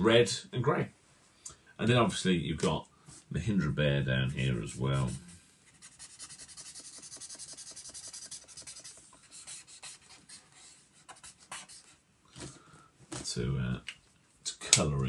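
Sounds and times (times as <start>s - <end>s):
marker scratching on paper: 4.5s - 12.0s.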